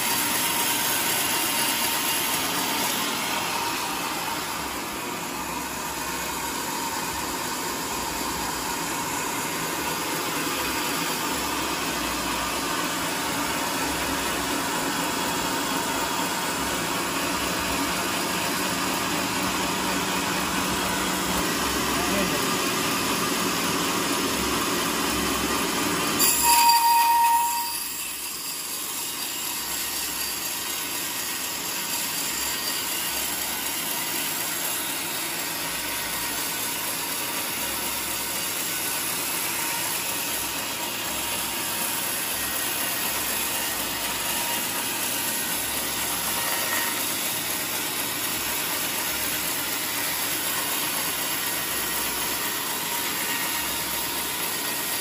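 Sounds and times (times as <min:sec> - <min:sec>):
bandsaw cutting log: 0:00.0 - 0:55.0
high blade squeal: 0:26.2 - 0:36.0, 0:38.0 - 0:48.1, 0:50.6 - 0:55.0.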